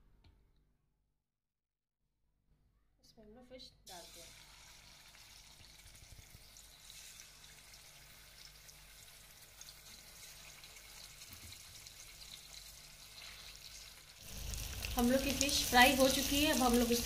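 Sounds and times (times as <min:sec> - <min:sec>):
fish frying in hot oil: 0:03.9 - 0:17.0.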